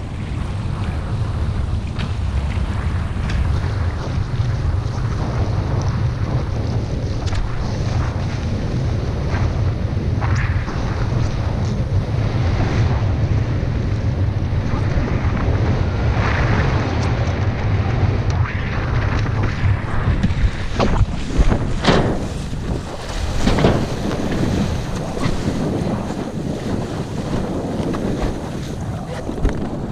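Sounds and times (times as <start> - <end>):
low rumble: 0.0 - 29.9
wind buffeting microphone: 0.0 - 29.9
water rushing past: 6.2 - 29.9.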